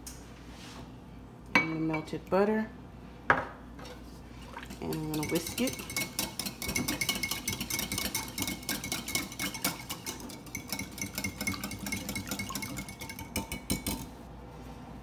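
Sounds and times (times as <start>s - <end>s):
whisk ticking against bowl: 4.7s - 14.1s.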